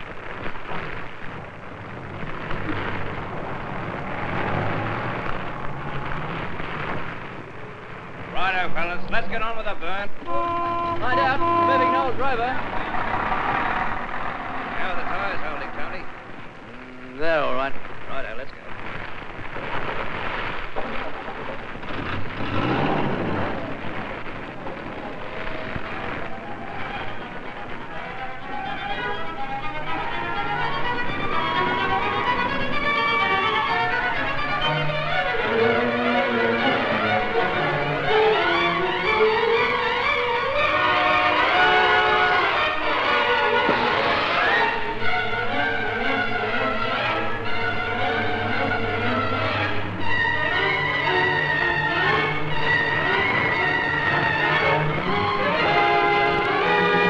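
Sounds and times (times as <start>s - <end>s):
engine running low: 0.0s - 8.4s, 20.0s - 57.0s
burning scrub crackling: 0.0s - 57.0s.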